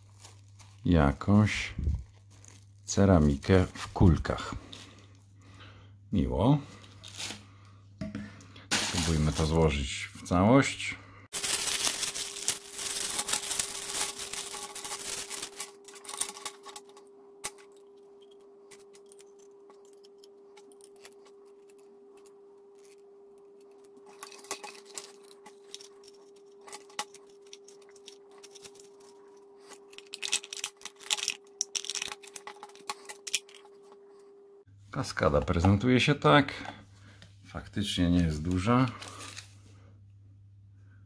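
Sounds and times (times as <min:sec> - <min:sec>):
plastic bag crinkling: 0:00.0 - 0:05.1, 0:06.8 - 0:07.6, 0:08.7 - 0:09.8, 0:11.3 - 0:17.7, 0:23.8 - 0:33.6, 0:38.5 - 0:39.5
faint hum: 0:00.0 - 0:41.0.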